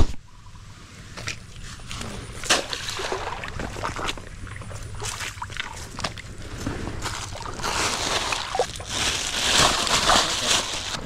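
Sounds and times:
shallow water sloshing and splashing: 1.0s - 11.0s
bag handled in water: 1.2s - 11.0s.

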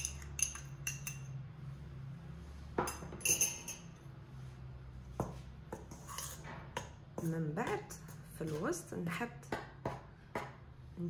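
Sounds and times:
spoon clinking against bowl: 0.0s - 1.4s, 2.8s - 4.0s.

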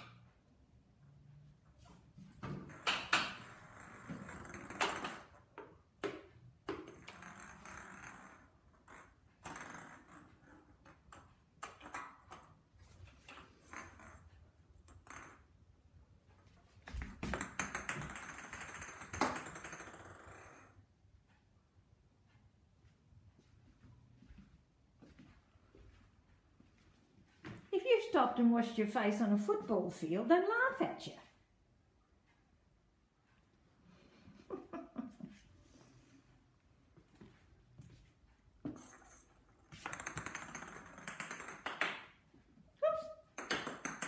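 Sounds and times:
ball rolling and scraping: 1.8s - 15.6s, 16.8s - 20.8s, 38.6s - 41.9s
toy ball tapping on tiled floor: 2.4s - 12.6s, 13.6s - 15.6s, 16.9s - 20.8s, 38.6s - 44.0s.

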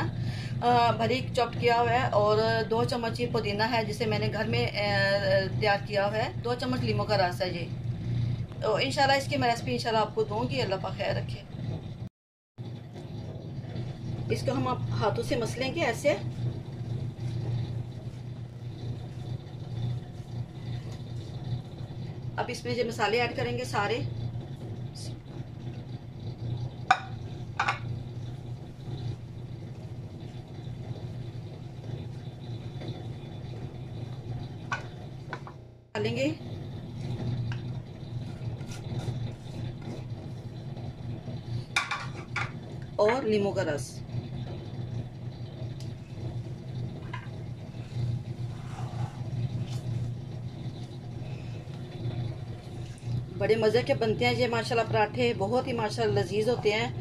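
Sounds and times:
low hum: 0.0s - 57.0s
plate knocking on dish: 26.9s - 27.8s.

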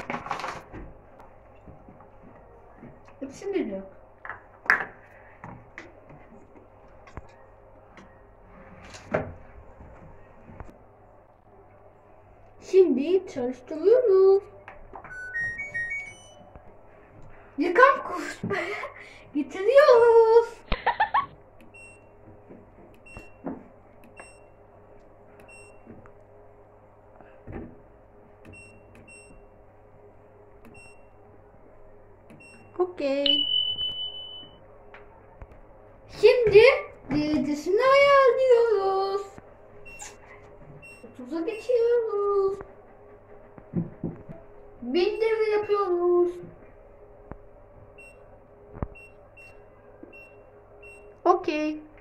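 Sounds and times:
low steady hum: 0.0s - 52.0s
high control panel beeps: 15.1s - 16.5s, 23.0s - 24.6s, 25.4s - 25.9s, 28.5s - 29.5s, 30.6s - 31.2s, 32.4s - 34.6s, 39.8s - 40.2s, 48.0s - 48.3s, 49.0s - 51.2s.

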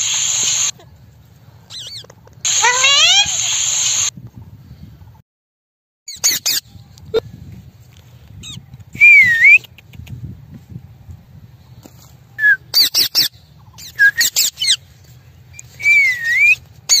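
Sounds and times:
parakeet sharp shrieks: 0.0s - 0.7s, 1.7s - 4.1s
parakeet whistled call: 0.0s - 0.7s, 2.5s - 4.1s.

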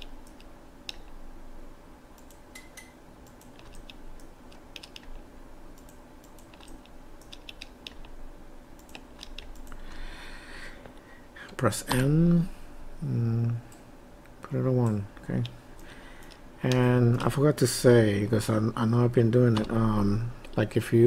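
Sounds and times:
faint steady hum: 0.0s - 21.0s
mouse and keyboard clicks: 2.2s - 5.2s, 5.8s - 8.2s, 8.8s - 9.8s.

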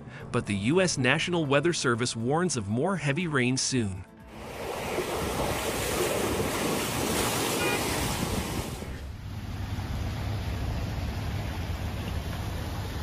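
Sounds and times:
floodwater rushing: 4.3s - 13.0s
water surging and splashing: 4.3s - 13.0s.

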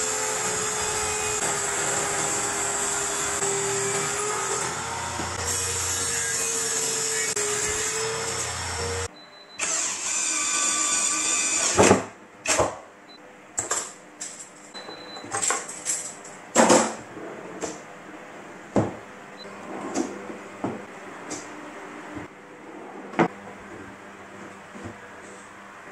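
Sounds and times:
power tool running: 0.0s - 12.0s
table saw ripping board: 11.6s - 12.1s.

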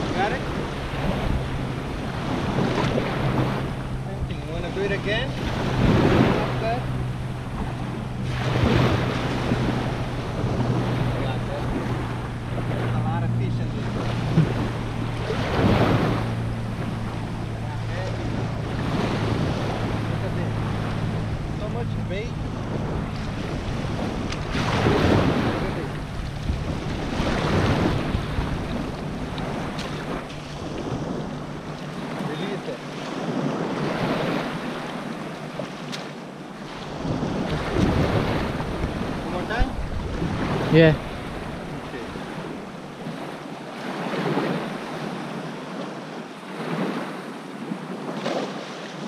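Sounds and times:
small waves lapping: 0.0s - 49.0s
wind noise on microphone: 5.1s - 13.2s, 13.8s - 32.0s, 36.9s - 43.2s.

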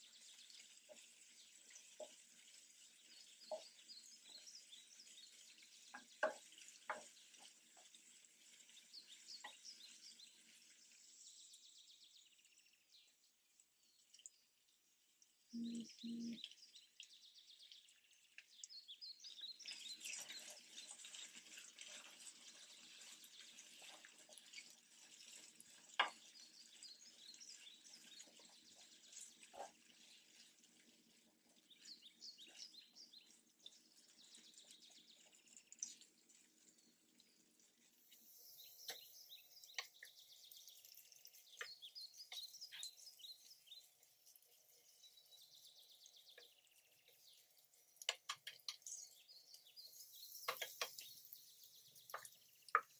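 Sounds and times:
soft high chirping: 15.6s - 16.5s, 38.0s - 44.0s.

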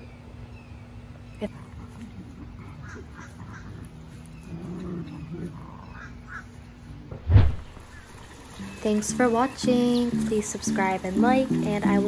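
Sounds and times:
loud sudden thump: 7.1s - 7.9s.

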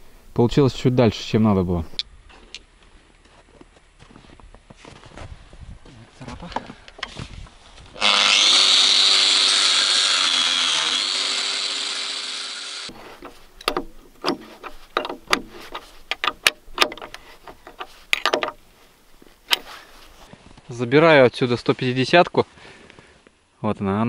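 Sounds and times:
power tool motor under load: 8.0s - 17.9s
wrench clicking and scraping on nut: 12.9s - 18.6s, 19.4s - 19.8s.

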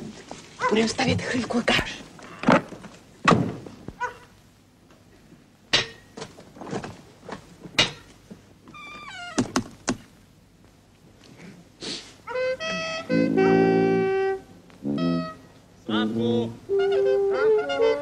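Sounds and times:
knocks and thuds: 3.2s - 4.0s.

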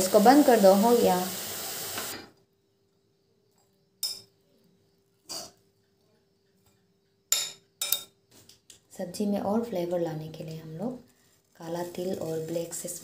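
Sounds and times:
frying sizzle: 0.0s - 2.3s, 11.6s - 13.0s
metallic clinks of cookware: 4.0s - 4.3s, 7.3s - 8.2s.

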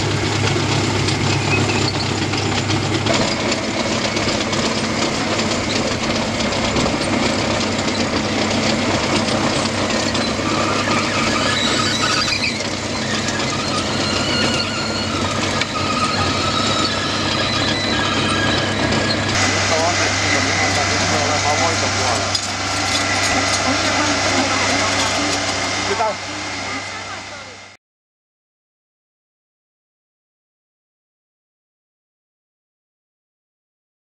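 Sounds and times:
trencher and tractor engines running: 0.0s - 27.8s
high thin metallic squealing: 1.2s - 4.2s, 9.0s - 27.2s.

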